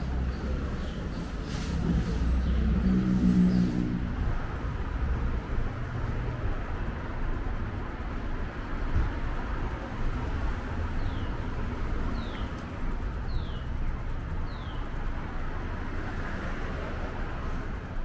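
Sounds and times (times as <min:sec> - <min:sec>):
traffic rumble: 0:00.0 - 0:18.0.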